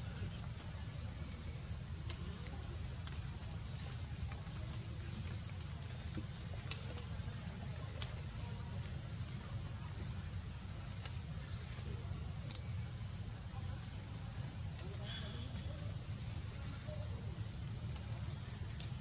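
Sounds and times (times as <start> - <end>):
faint clicks: 2.0 - 10.0, 10.9 - 12.7.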